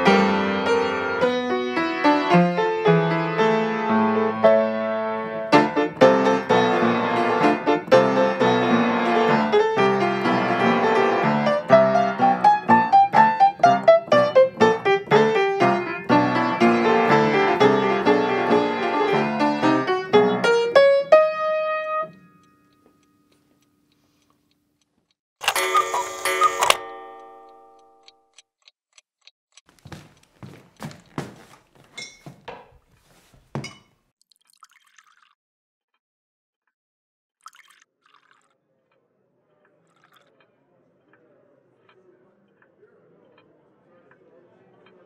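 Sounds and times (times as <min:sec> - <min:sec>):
solo piano classical piece: 0:00.0 - 0:22.4.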